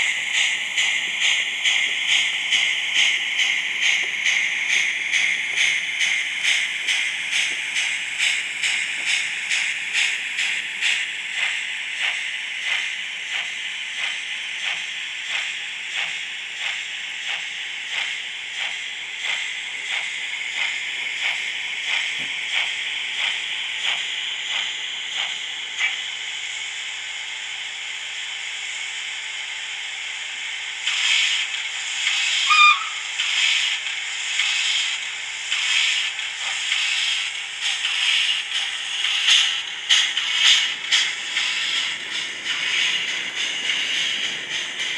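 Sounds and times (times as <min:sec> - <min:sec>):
steam hiss: 0:00.0 - 0:26.6, 0:30.1 - 0:44.9
steam exhaust chuffs: 0:00.0 - 0:44.9
brief squeal: 0:32.4 - 0:33.0.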